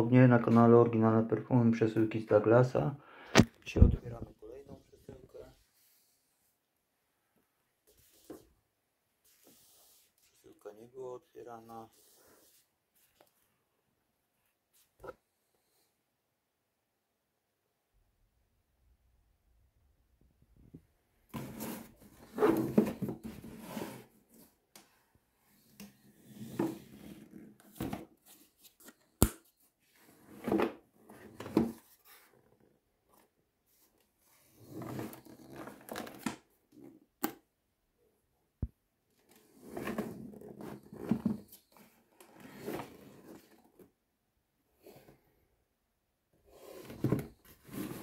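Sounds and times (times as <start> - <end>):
cardboard box rubbing and scraping: 21.4 - 24.2, 46.6 - 48.0.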